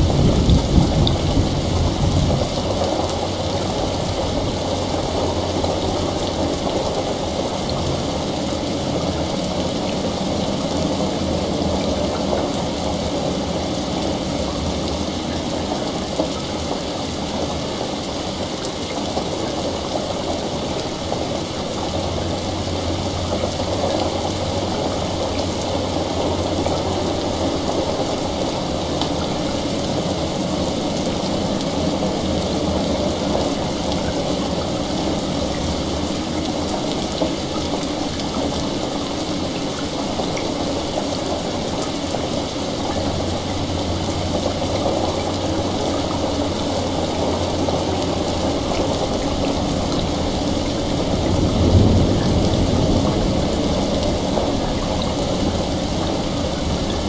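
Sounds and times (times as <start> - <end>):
heavy rain: 0.0 - 57.0.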